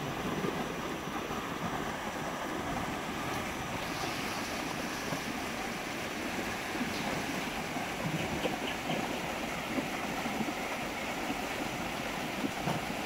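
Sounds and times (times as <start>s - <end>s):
river rushing over rapids: 0.0s - 13.0s.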